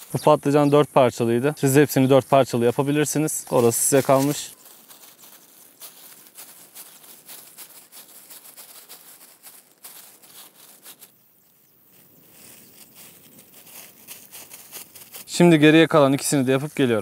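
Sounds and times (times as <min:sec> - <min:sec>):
plastic gloves crinkling: 0:02.7 - 0:11.2, 0:11.9 - 0:16.0.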